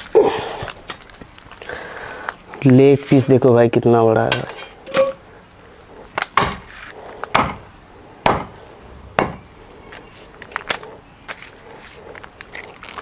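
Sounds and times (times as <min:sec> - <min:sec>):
knife chopping on wooden block: 0:07.3 - 0:07.6, 0:08.3 - 0:08.6.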